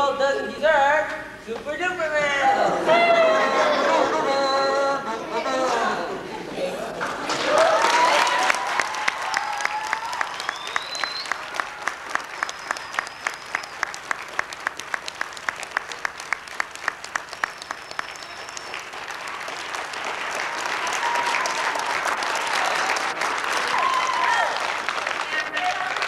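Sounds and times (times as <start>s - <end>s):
audience applause: 7.0s - 26.0s.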